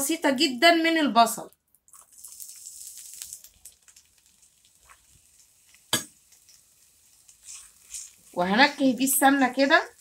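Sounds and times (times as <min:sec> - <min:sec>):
onion frying with crackles: 0:01.8 - 0:10.0
spatula stirring: 0:04.8 - 0:10.0.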